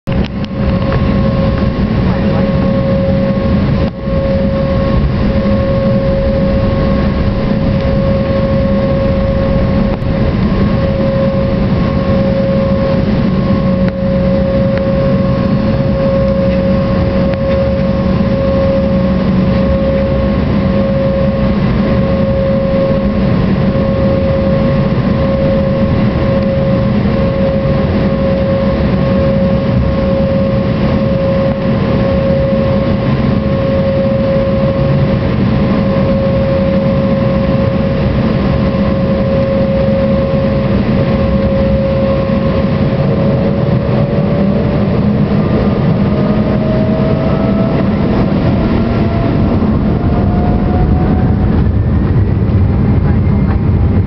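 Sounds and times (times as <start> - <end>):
jet engine whine: 0.0 - 54.0
low cabin rumble: 0.0 - 54.0.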